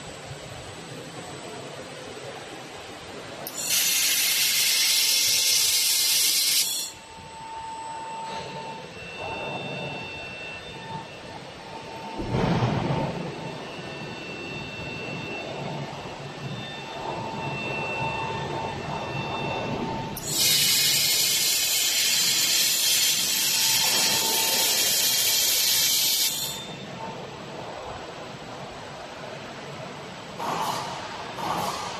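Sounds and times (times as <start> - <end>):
robot arm whine: 3.4 - 27.1
laser welding spatter hiss: 3.5 - 6.9, 20.2 - 26.7.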